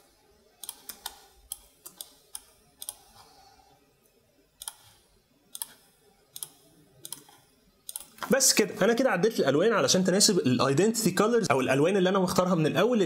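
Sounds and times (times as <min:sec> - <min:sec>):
mouse and keyboard clicks: 0:00.6 - 0:03.2, 0:04.6 - 0:08.3.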